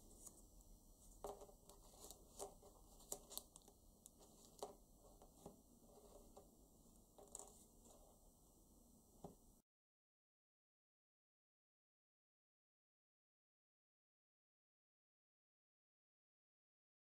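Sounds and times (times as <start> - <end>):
paper banknote crinkling: 1.0 - 6.4, 7.2 - 8.1.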